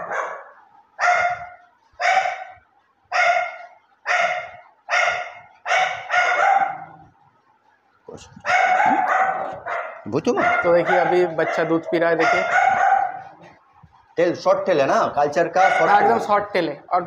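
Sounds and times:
small dog barking: 0.0 - 7.1, 8.4 - 13.5, 15.6 - 16.3.

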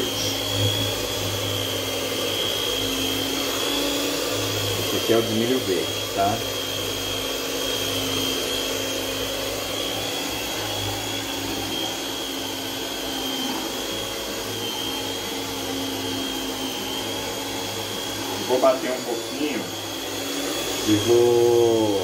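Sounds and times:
high whine: 0.0 - 6.6
electric mixer running: 0.0 - 22.0.

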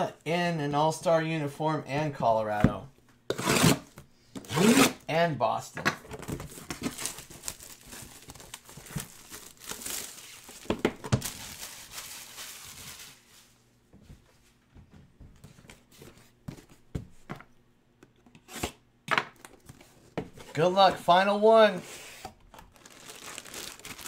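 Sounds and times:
shrink-wrap tearing and crinkling: 6.4 - 13.5, 22.6 - 24.0.

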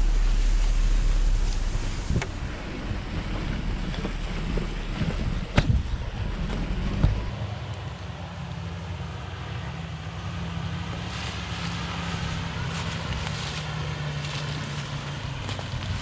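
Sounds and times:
wind on microphone: 0.0 - 7.3
vehicle engine and tyre rumble: 0.0 - 16.0.

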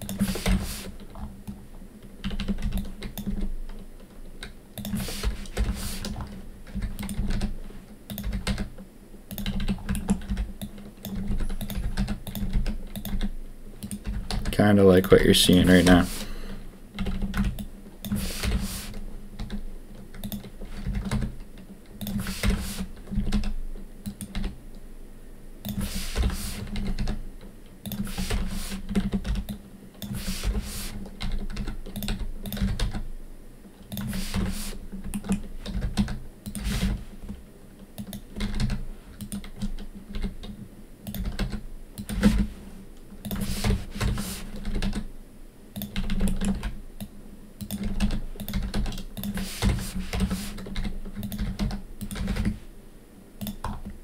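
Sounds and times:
computer keyboard clicks: 0.0 - 1.3, 2.2 - 3.8, 4.4 - 7.5, 8.1 - 8.7, 9.3 - 14.5, 17.0 - 18.6, 19.4 - 24.6, 26.6 - 30.2, 30.9 - 33.0, 33.8 - 34.5, 35.1 - 37.0, 38.0 - 42.5, 43.2 - 45.0, 45.8 - 52.6, 53.4 - 53.9.

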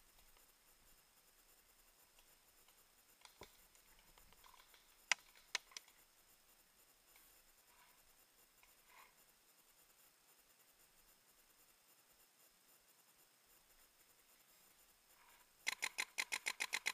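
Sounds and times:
faint click: 2.1 - 6.0.

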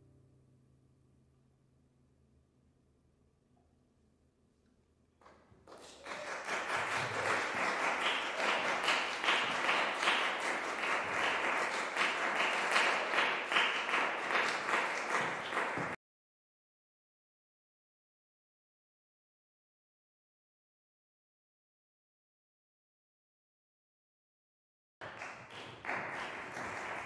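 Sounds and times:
audience applauding: 5.6 - 16.0, 25.0 - 27.0.

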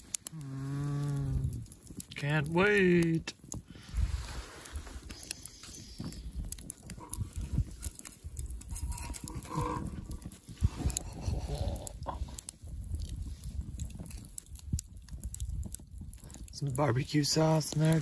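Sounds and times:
campfire crackling: 0.0 - 18.0
steady low rumble: 0.2 - 18.0
spatula scraping grill: 7.0 - 11.6.

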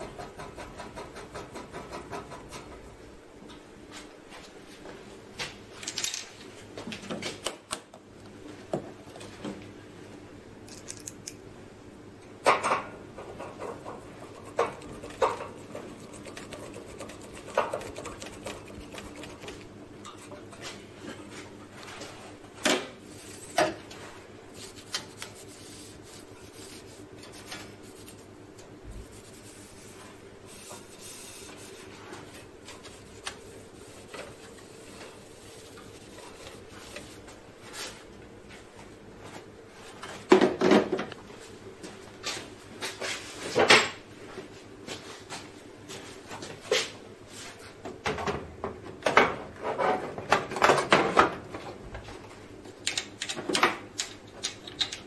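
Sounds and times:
screwdriver clicking on metal parts: 10.7 - 11.4.

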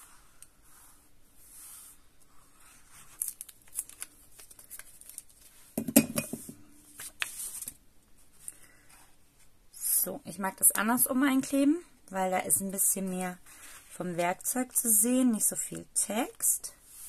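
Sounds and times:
paper rustling: 1.7 - 5.7, 6.9 - 8.4.

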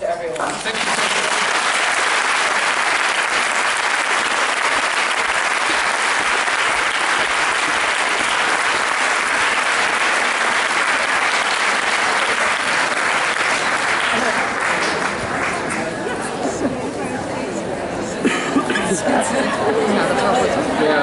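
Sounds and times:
audience applauding: 0.4 - 16.2.

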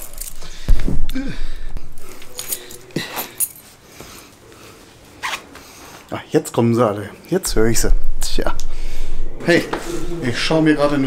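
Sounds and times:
keys jingling: 0.0 - 0.7, 2.0 - 3.8.

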